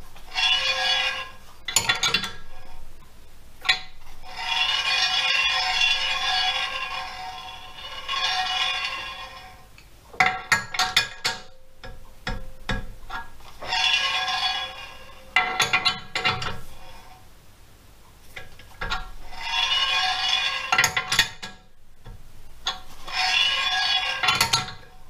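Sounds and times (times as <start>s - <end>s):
metallic ringing and rasping: 0.1s - 17.2s, 18.3s - 25.0s
steel bar tapping metal wheel: 10.2s - 16.6s.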